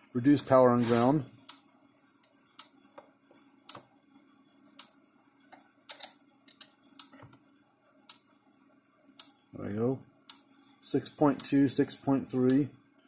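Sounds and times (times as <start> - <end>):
faint steady hum: 0.0 - 13.0
electric fence energizer clicking: 5.9 - 6.2, 7.0 - 7.2.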